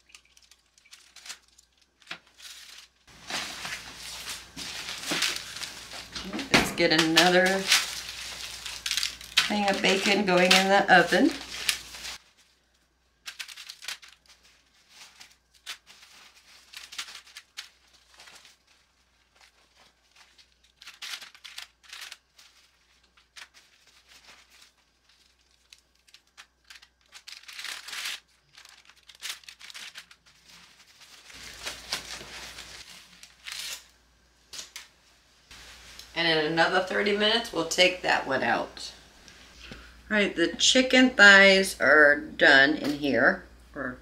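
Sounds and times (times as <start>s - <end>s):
paper and foil crinkling: 0.0s - 34.9s, 35.5s - 36.2s.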